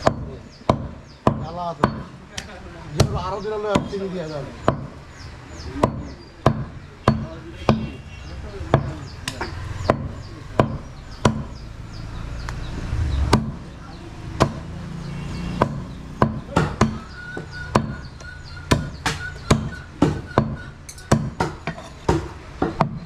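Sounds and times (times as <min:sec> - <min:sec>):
cleaver chopping on wooden block: 0:00.0 - 0:04.0, 0:04.6 - 0:05.0, 0:05.8 - 0:07.9, 0:08.7 - 0:11.6, 0:13.3 - 0:13.6, 0:14.4 - 0:14.7, 0:15.5 - 0:23.0.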